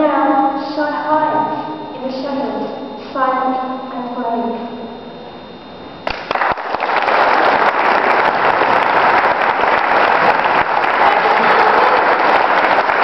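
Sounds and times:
audience applauding in echoey hall: 6.0s - 13.0s.

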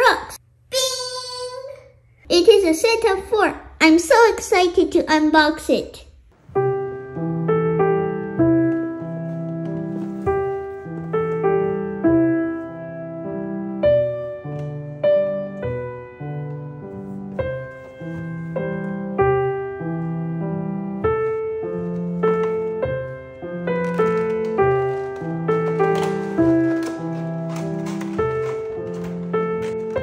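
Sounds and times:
gentle piano music: 6.4s - 30.0s.

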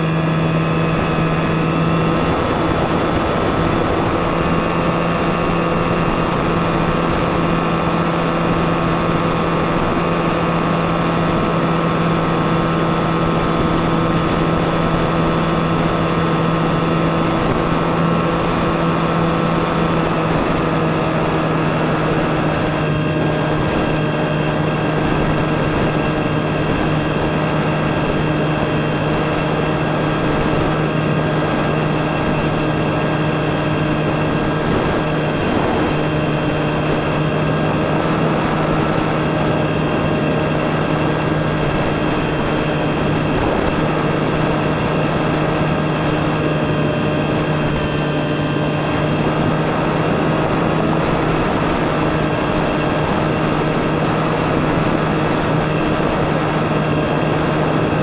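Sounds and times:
electric motor and propeller hum: 0.0s - 58.0s.

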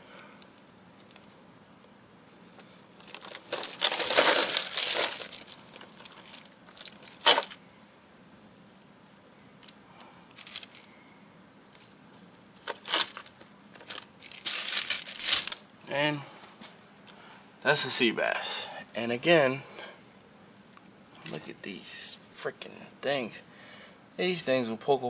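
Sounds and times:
ice cubes clattering and crunching: 3.0s - 7.6s, 12.7s - 15.6s.

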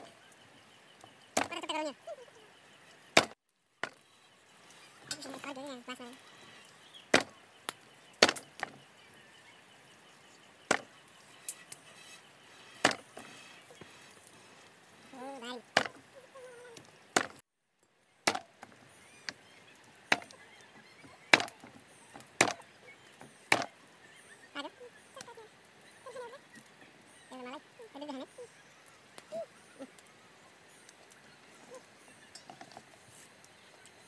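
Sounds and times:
knife chopping on wooden block: 23.5s - 23.7s.

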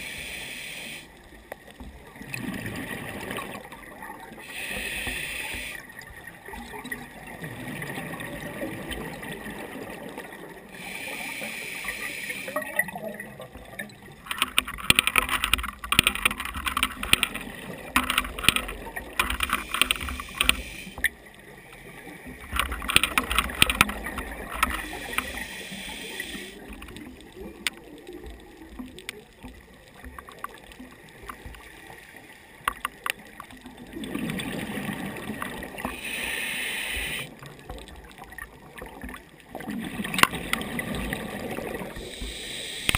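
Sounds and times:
diver inhaling through regulator: 0.0s - 1.1s, 4.4s - 5.9s, 10.8s - 12.6s, 19.6s - 21.0s, 24.8s - 26.6s, 35.8s - 37.4s, 42.0s - 42.9s
gurgling exhaled bubbles: 2.0s - 4.4s, 5.6s - 10.7s, 33.6s - 36.2s, 37.0s - 42.2s.

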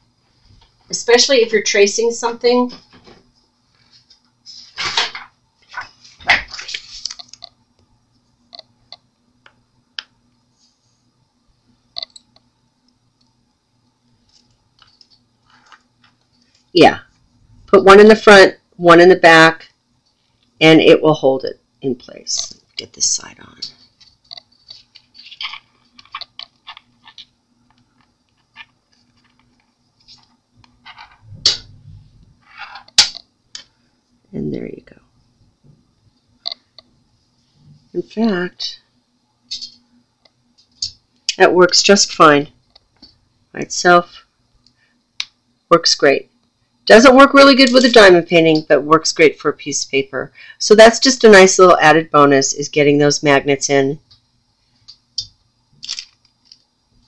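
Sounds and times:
paper rustling: 5.6s - 7.4s, 23.8s - 27.3s.

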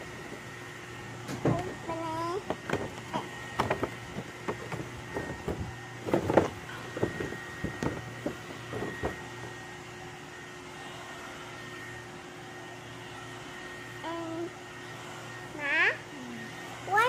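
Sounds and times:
steady hum: 0.0s - 17.0s
cardboard box rustling and knocking: 3.6s - 9.2s.

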